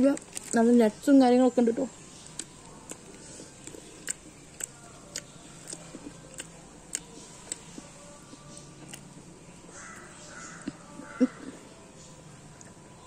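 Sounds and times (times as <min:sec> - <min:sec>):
close chewing: 0:00.0 - 0:01.0, 0:01.9 - 0:13.0
wet mouth clicks: 0:02.2 - 0:07.9, 0:08.8 - 0:09.1.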